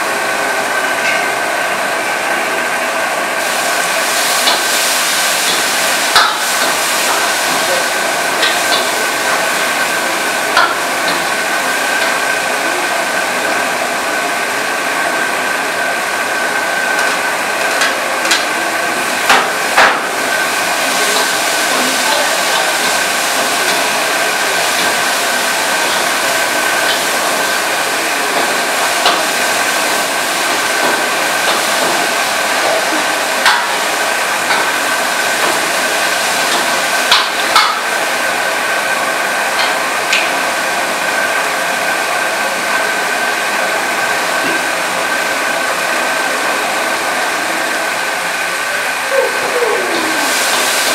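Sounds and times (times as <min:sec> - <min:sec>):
chicken sizzling in a wok: 0:03.4 - 0:50.9.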